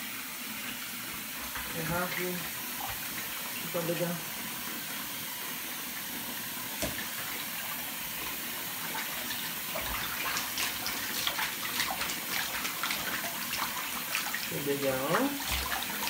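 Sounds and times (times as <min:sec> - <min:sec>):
water running into bathtub: 0:00.0 - 0:16.0
water splashing: 0:08.0 - 0:16.0.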